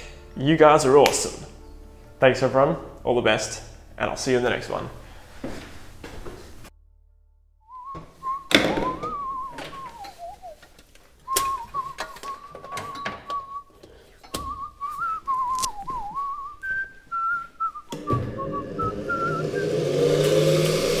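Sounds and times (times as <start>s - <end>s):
hum with rising pitch: 6.6s - 10.4s, 17.8s - 21.0s
man whistling a tune: 7.7s - 10.6s, 11.2s - 20.3s.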